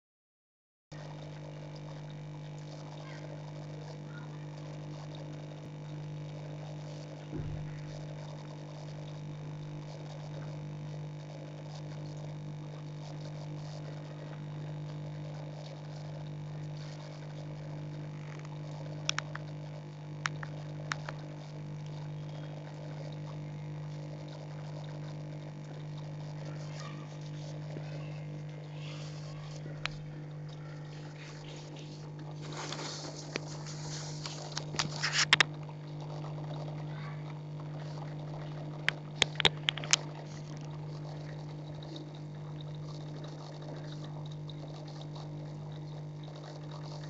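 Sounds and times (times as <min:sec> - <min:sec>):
aquarium equipment humming: 0:00.9 - 0:47.0
soft thump: 0:07.3 - 0:07.8.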